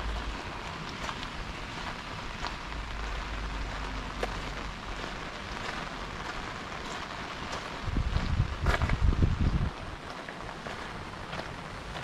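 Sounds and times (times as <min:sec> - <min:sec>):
low rumble: 0:00.0 - 0:06.3
pouring rain: 0:00.0 - 0:12.0
raindrops ticking close by: 0:00.0 - 0:12.0.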